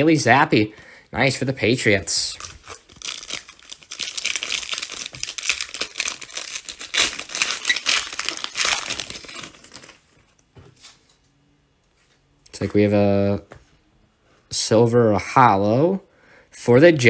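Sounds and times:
foil wrapper crackling: 0:02.3 - 0:10.0.

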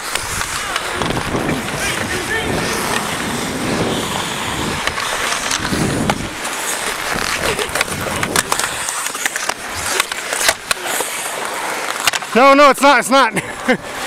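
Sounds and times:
wind on microphone: 0:00.0 - 0:08.8
skate blades scraping on ice: 0:00.0 - 0:14.0.

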